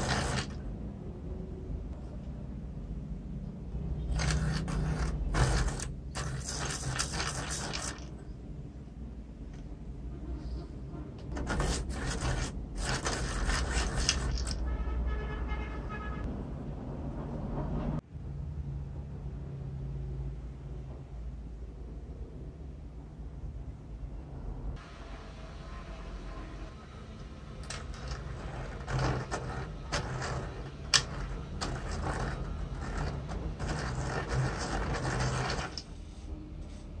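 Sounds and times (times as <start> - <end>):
pencil sharpener grinding: 0.0 - 0.6, 4.1 - 8.2, 11.3 - 14.6, 27.6 - 35.9.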